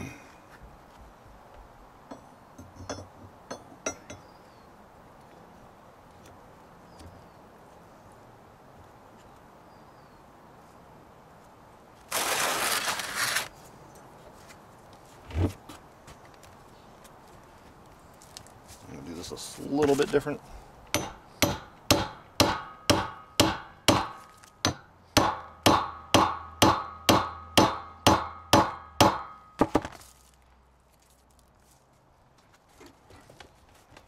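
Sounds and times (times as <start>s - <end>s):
light metal clinks: 2.1s - 4.3s.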